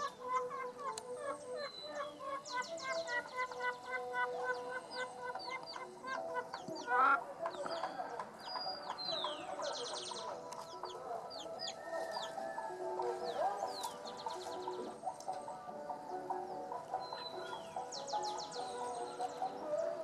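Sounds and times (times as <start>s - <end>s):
loud bird call: 0.0s - 12.6s, 16.1s - 20.0s
chickens clucking: 0.0s - 20.0s
small birds chirping and whistling: 0.0s - 20.0s.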